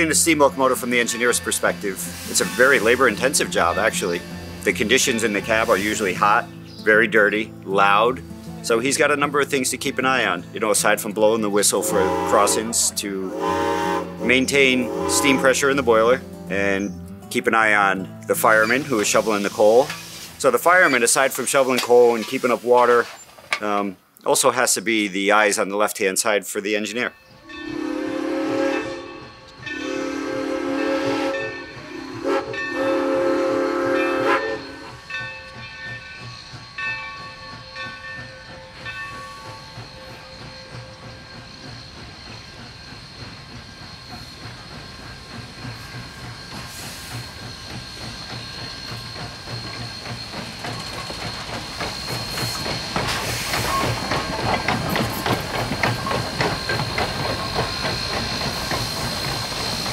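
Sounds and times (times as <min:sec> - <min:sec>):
steam hissing: 0:00.0 - 0:07.4, 0:08.7 - 0:17.0, 0:18.3 - 0:23.5, 0:27.6 - 0:59.9
steam locomotive whistle: 0:00.0 - 0:07.9, 0:08.7 - 0:16.9, 0:18.3 - 0:22.0, 0:27.4 - 0:59.9
wheels clicking over rails: 0:35.0 - 0:59.9.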